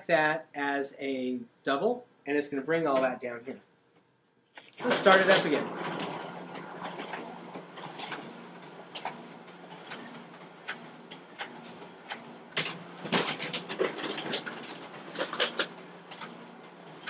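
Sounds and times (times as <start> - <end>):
machine motor hum: 4.6 - 17.0.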